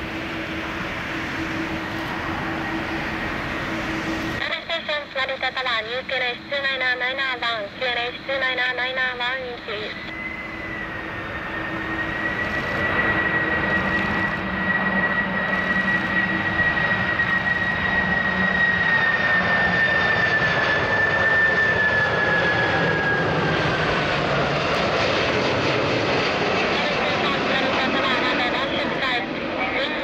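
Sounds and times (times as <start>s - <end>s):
rushing jet noise: 0.0s - 4.5s, 10.1s - 29.2s
jet engine whine: 0.0s - 30.0s.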